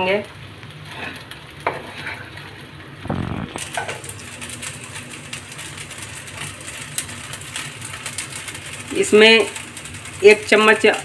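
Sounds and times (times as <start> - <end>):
crackly frying sizzle: 0.0 - 11.0
wooden spatula stirring in pan: 0.6 - 11.0
steady low hum: 3.0 - 3.8.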